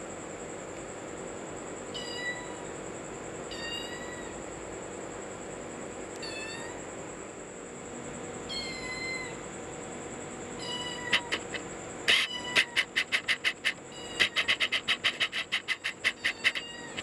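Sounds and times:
kitten meowing: 8.5s - 9.4s, 10.6s - 17.0s
rapid sharp clicks: 11.1s - 17.0s.

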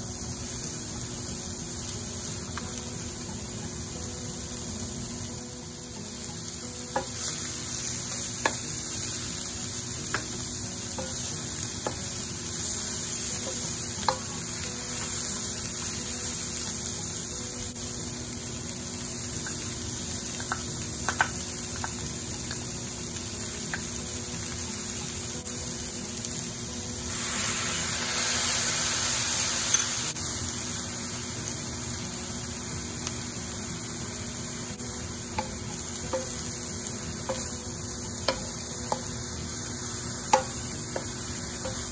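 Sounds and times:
food sizzling in a wok: 0.0s - 41.9s.

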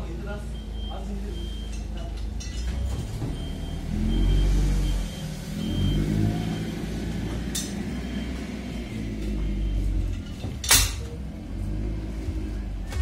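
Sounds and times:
forklift engine rumble: 0.0s - 13.0s
reversing alarm beeping: 0.4s - 2.0s, 3.2s - 10.2s.

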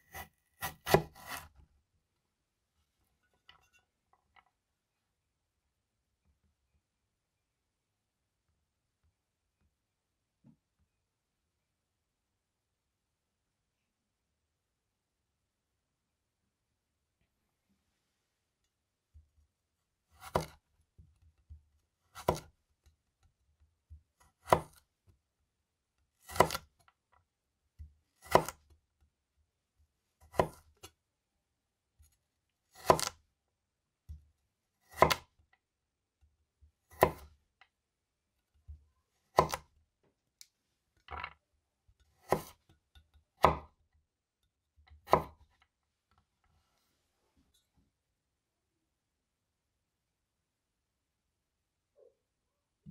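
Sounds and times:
knife cutting carrot on board: 0.0s - 1.6s, 20.1s - 25.2s, 26.0s - 26.9s, 27.8s - 28.8s, 30.2s - 31.0s, 32.0s - 33.2s, 34.0s - 35.5s, 36.2s - 37.6s, 38.5s - 39.8s, 41.9s - 43.8s, 44.4s - 45.7s.

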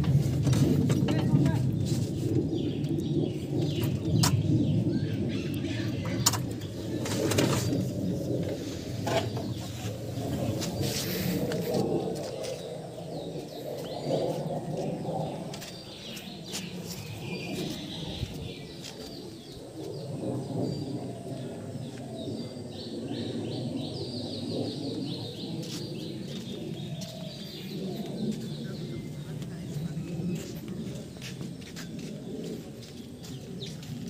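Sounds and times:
doves cooing: 0.0s - 34.0s
small birds chirping and trilling: 0.0s - 34.0s.

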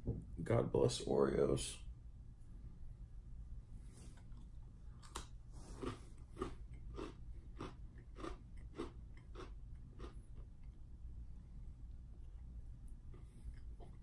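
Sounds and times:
person crunching a cookie: 4.4s - 10.8s.

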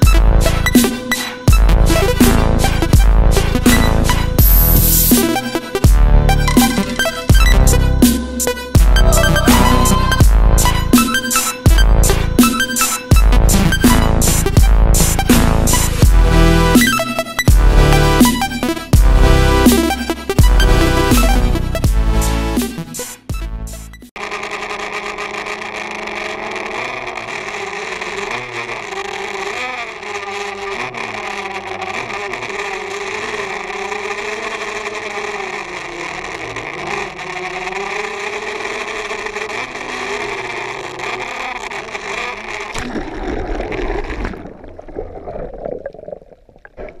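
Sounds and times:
drone propellers whirring: 0.0s - 21.8s, 24.2s - 42.8s
muffled underwater rushing: 7.0s - 16.0s, 41.7s - 47.0s.

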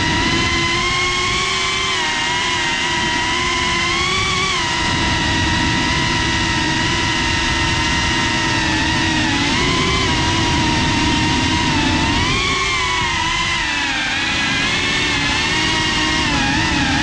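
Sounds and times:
drone motors buzzing whine: 0.0s - 17.0s
rushing air: 4.9s - 17.0s.

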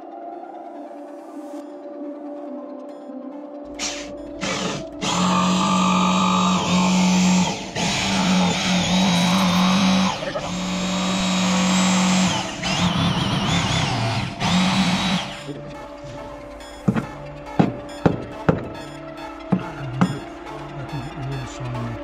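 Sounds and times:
oscillating multi-tool cutting wood: 3.8s - 16.3s.

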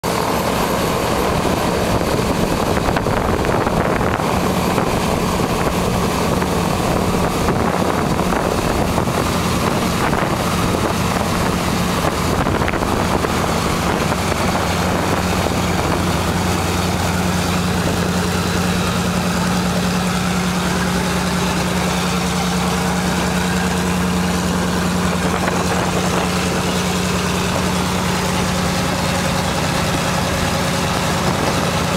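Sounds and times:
piston aircraft engines idling: 0.0s - 31.9s.

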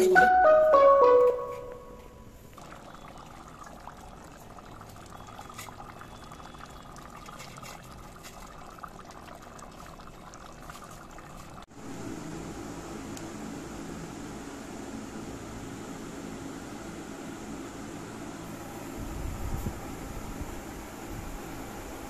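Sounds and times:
curry bubbling in a pan: 2.6s - 11.7s.

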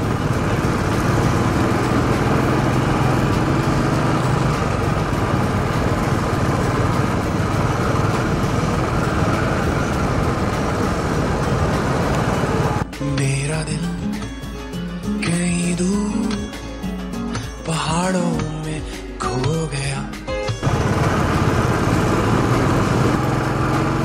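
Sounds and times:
motorcycle engine running: 0.0s - 12.8s, 20.5s - 24.0s
wind and road noise: 0.0s - 12.9s, 20.6s - 24.0s.

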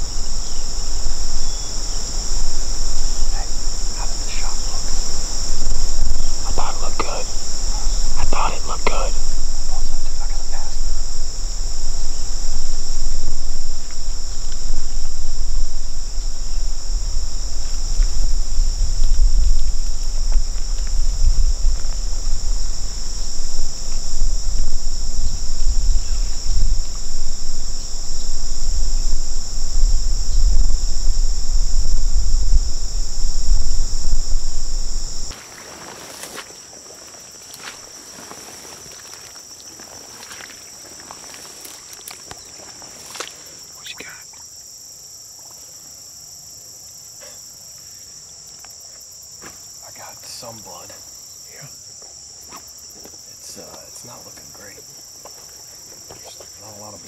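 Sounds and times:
heavy low rumble: 0.0s - 35.3s
insects trilling: 0.0s - 57.0s
footsteps through tall grass: 1.8s - 27.1s, 34.4s - 43.6s.

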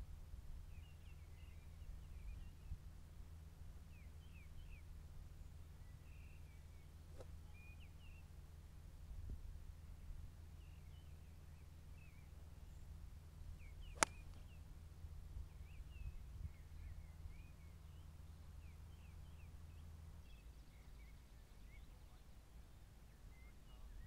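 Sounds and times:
golf club striking ball: 14.0s - 14.3s.

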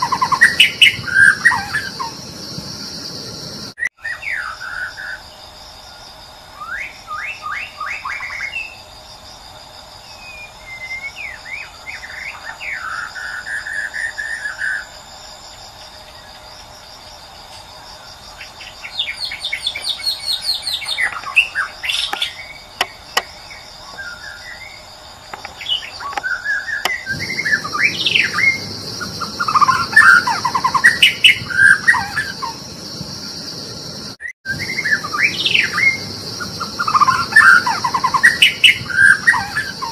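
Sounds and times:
bird whistling song with trills: 0.0s - 2.2s, 4.0s - 5.2s, 6.6s - 8.8s, 10.1s - 14.9s, 18.8s - 24.8s, 25.6s - 32.6s, 34.5s - 39.9s
high insect drone: 0.0s - 39.9s.

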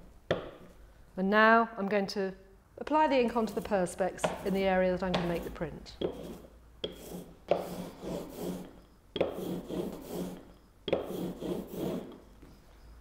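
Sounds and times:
ink roller rolling through ink: 3.3s - 12.2s.

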